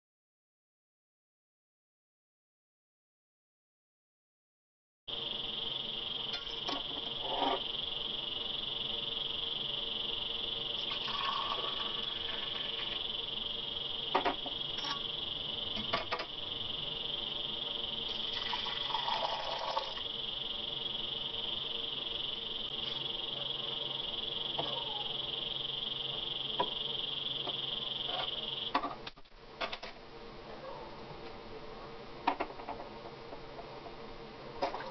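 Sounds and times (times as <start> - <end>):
high-pitched buzz: 5.1 - 28.8
insect chorus: 5.1 - 30.0.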